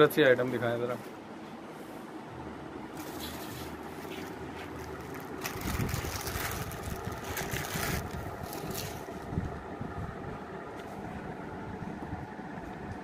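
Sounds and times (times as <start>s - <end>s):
plastic wrapping crinkling: 2.9s - 9.2s
low rumble: 4.8s - 13.0s.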